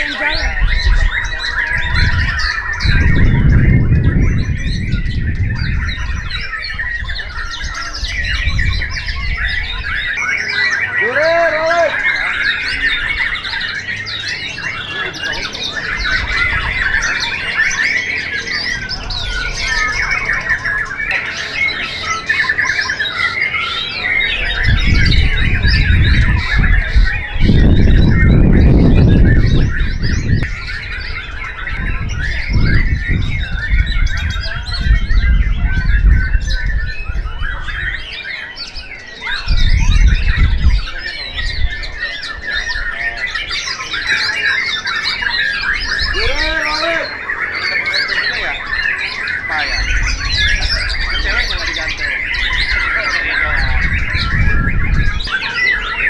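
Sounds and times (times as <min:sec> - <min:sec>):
birds singing and chattering: 0:00.0 - 0:56.0.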